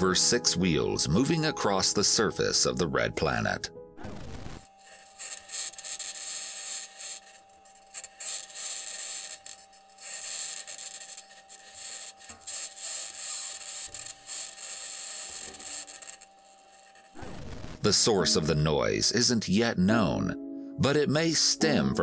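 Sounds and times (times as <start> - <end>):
scratchy high-pitched rasping: 4.0 - 17.6.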